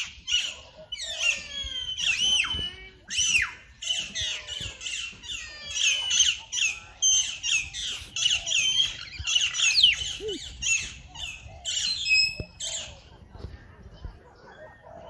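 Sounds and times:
small birds chattering and squawking: 0:00.0 - 0:15.0.

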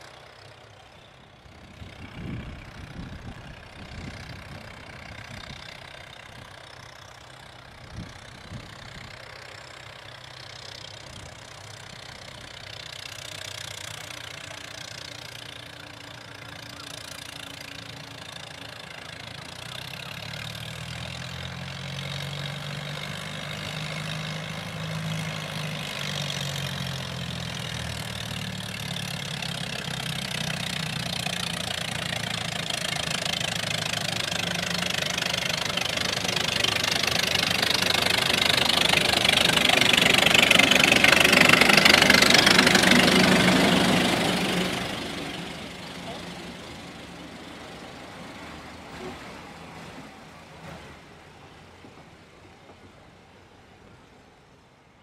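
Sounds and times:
diesel locomotive engine: 0:00.0 - 0:55.0
wheel and rail clatter: 0:00.0 - 0:55.0.

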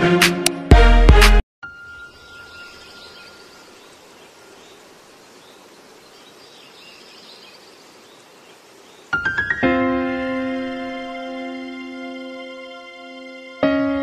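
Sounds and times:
music: 0:00.0 - 0:02.1, 0:09.2 - 0:14.0
faint background hiss: 0:02.0 - 0:09.5.

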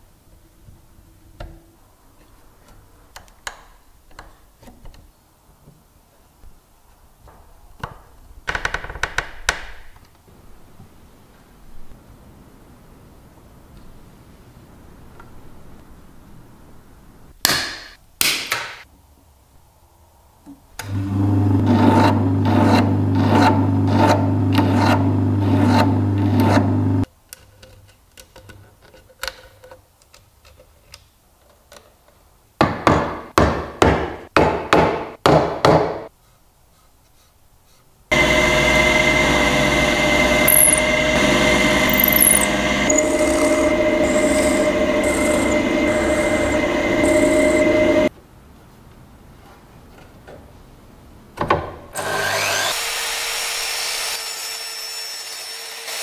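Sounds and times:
drill boring into wood: 0:38.1 - 0:48.1
machine stroking: 0:38.1 - 0:48.1.

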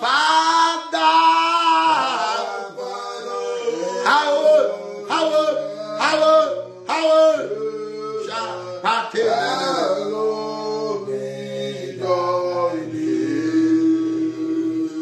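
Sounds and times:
man singing a slow worship song: 0:04.0 - 0:15.0.

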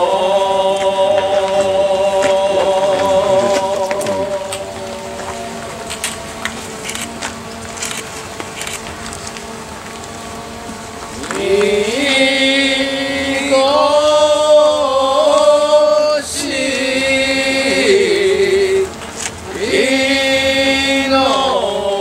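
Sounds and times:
group of voices chanting: 0:00.0 - 0:05.6, 0:11.2 - 0:22.0.

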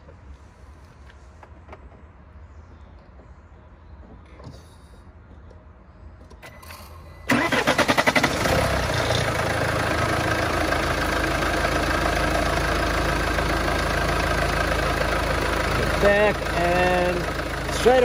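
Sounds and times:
diesel engine cranking: 0:06.4 - 0:18.0
diesel engine idling: 0:07.3 - 0:18.0.

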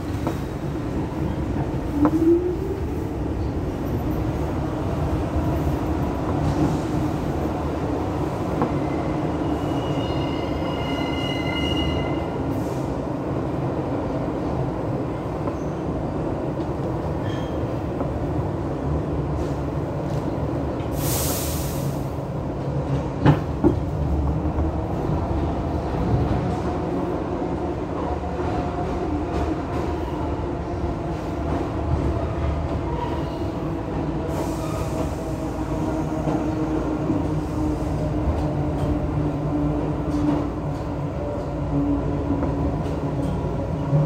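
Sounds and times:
train wheels rumbling on rail: 0:00.0 - 0:44.0
air hiss: 0:20.9 - 0:22.2.

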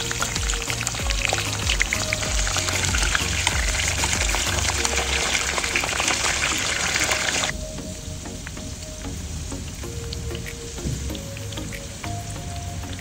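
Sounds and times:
food sizzling in hot oil: 0:00.0 - 0:07.6.

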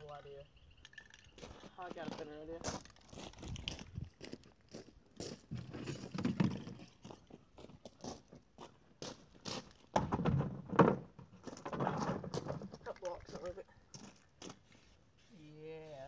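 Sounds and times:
footsteps on gravel: 0:01.4 - 0:09.9
clatter and rustle: 0:05.5 - 0:07.4, 0:09.7 - 0:14.5.

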